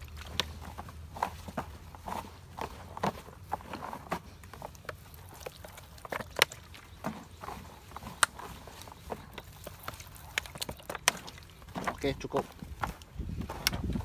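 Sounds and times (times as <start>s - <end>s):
bread crusts crunching and rustling: 0.0s - 14.0s.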